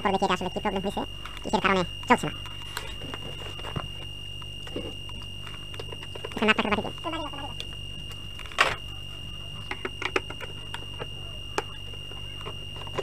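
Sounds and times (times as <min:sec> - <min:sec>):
low hum: 0:00.0 - 0:13.0
high-pitched tone: 0:04.6 - 0:13.0.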